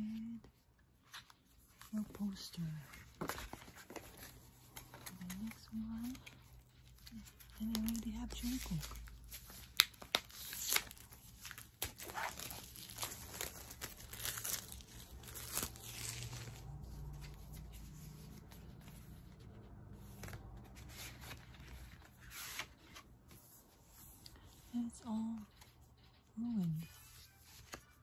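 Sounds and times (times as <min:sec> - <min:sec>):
packaging crinkling and tearing: 0:03.1 - 0:17.7.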